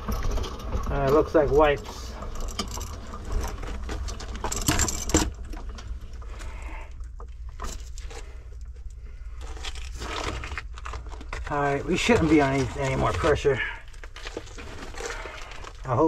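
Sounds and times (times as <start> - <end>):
metal cable rattling and clicking: 0.0 - 6.4
steady low hum: 0.0 - 16.0.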